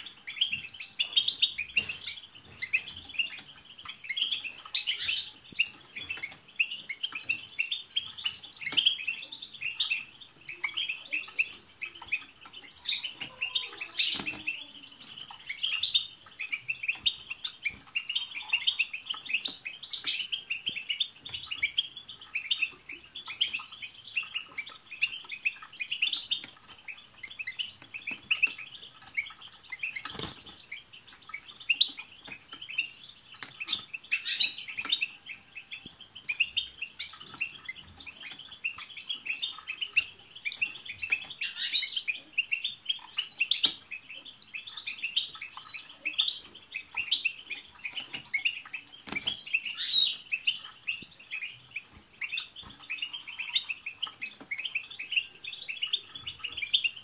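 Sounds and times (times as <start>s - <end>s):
finches twittering: 0.0s - 57.0s.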